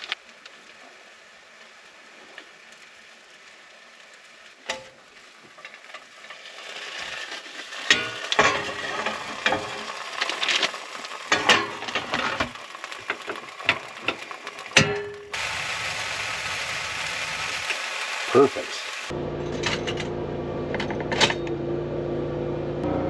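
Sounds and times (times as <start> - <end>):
bacon sizzling in frying pan: 0.9 - 19.1.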